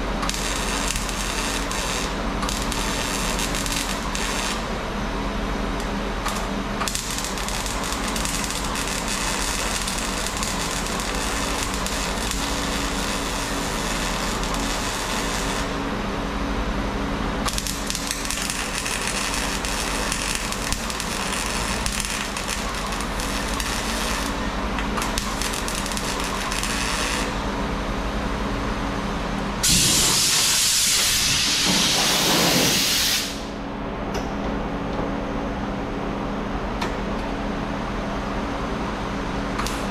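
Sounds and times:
welder crackling and hissing: 0.0 - 4.7, 5.8 - 15.8, 17.4 - 27.4, 29.6 - 33.6.

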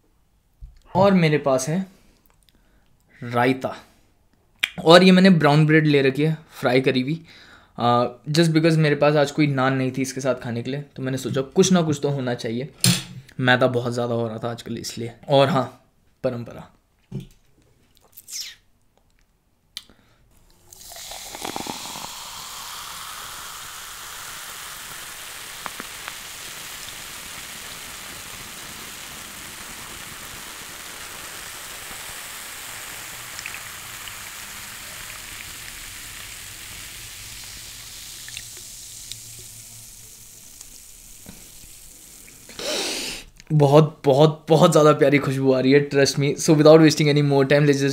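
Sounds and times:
drink pouring into glass: 20.4 - 42.6
carbonation fizzing: 20.4 - 43.3.

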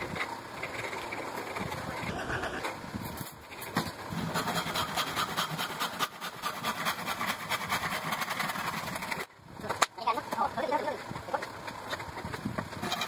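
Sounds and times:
sanding board edge: 4.2 - 9.3.

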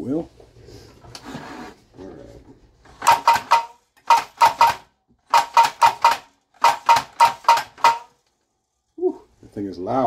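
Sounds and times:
toy cannon firing sharp clacks: 3.0 - 8.2.

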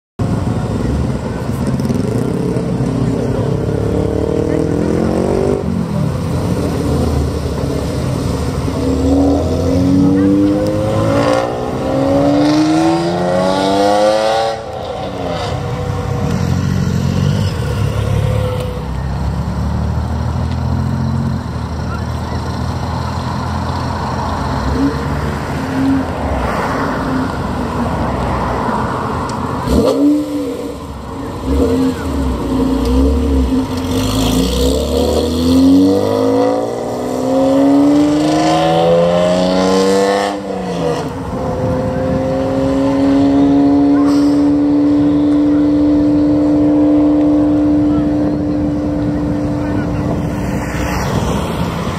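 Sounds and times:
car engine revving hard: 1.8 - 15.8, 29.6 - 50.3.

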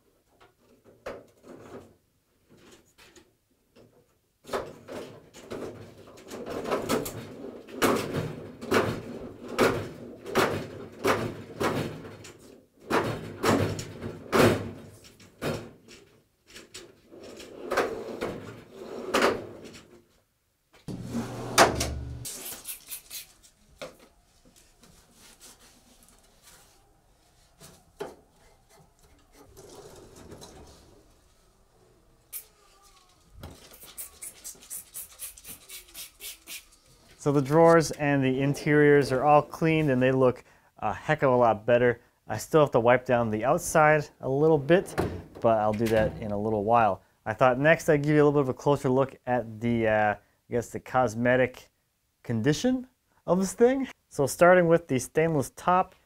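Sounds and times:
steel drawers sliding and clacking: 4.6 - 19.9, 20.9 - 22.3, 28.1 - 31.3.

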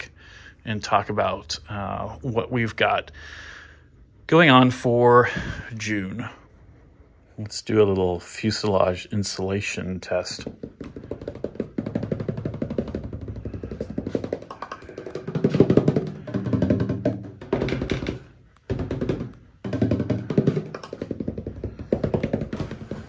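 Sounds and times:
hand drumming on aluminium skin: 10.4 - 23.0.

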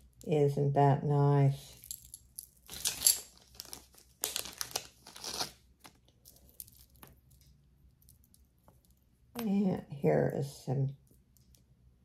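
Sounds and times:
wrapping material crinkling: 1.8 - 8.9.

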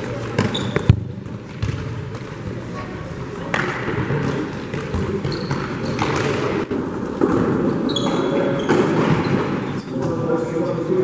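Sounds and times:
ball kicked and bouncing on court: 0.2 - 2.4, 3.5 - 9.6
trainers squeaking on floor: 0.4 - 0.9, 5.2 - 6.4, 7.7 - 10.0.

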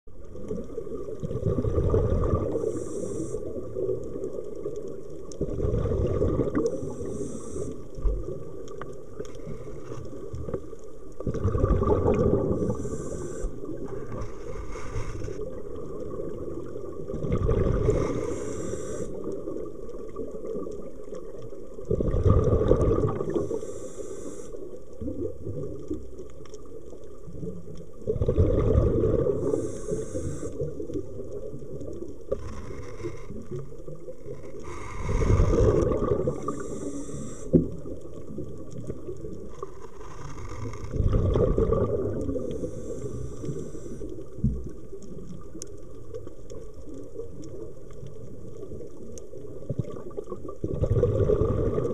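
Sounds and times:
underwater wash: 0.1 - 51.9.

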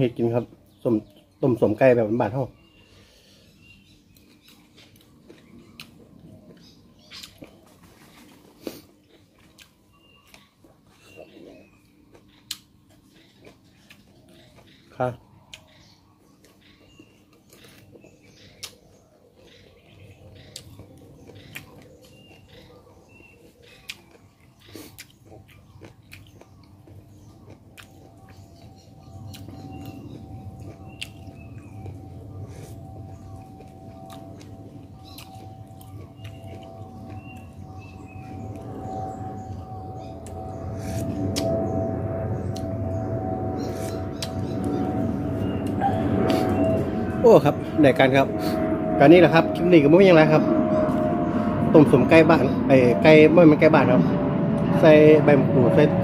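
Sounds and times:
man chewing food: 3.7 - 39.3
steady hum: 26.0 - 56.0
low rumble: 27.0 - 56.0.

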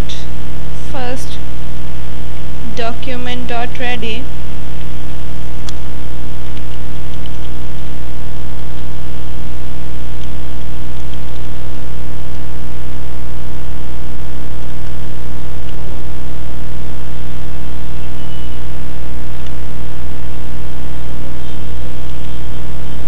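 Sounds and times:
electrical hum and hiss: 0.0 - 3.5.

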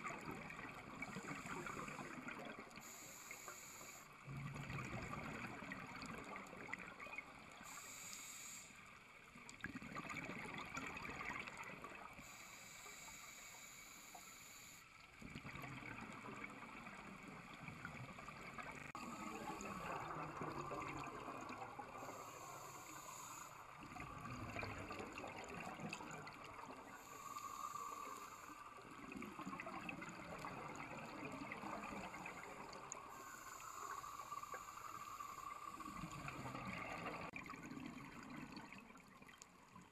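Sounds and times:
regulator inhalation hiss: 2.8 - 4.2, 7.6 - 9.1, 12.2 - 15.0, 21.7 - 23.9, 26.8 - 28.9, 31.6 - 37.2.

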